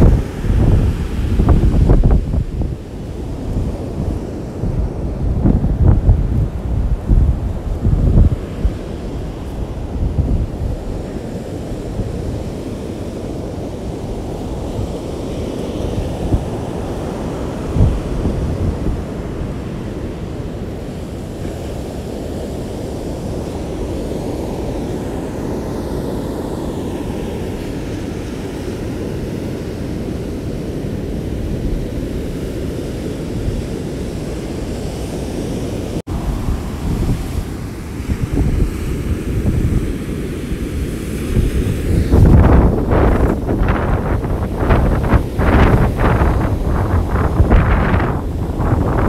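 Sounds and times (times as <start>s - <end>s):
heavy surf rushing: 0.0s - 49.0s
wind buffeting microphone: 0.0s - 49.0s.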